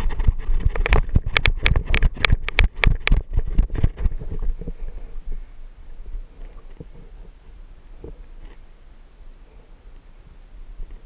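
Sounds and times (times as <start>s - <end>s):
wind on microphone: 0.0s - 8.6s.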